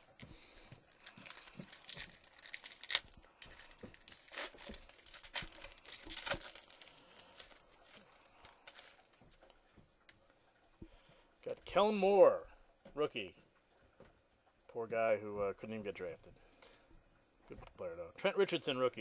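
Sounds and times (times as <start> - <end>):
foil wrapper tearing and crinkling: 0.0 - 9.1.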